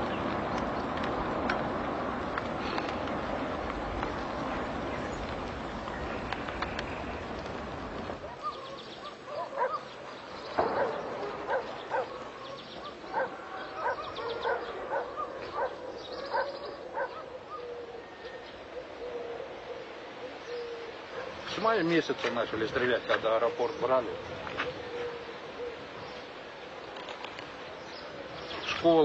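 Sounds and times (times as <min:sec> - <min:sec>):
dogs barking: 0:08.2 - 0:17.9, 0:21.0 - 0:21.5.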